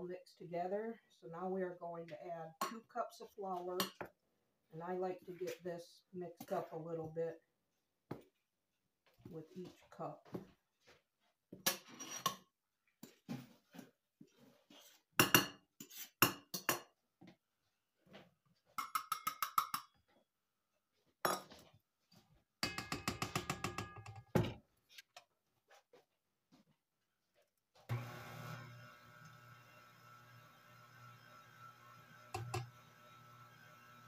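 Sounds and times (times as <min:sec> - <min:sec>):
stand mixer motor running: 0:27.9 - 0:34.0.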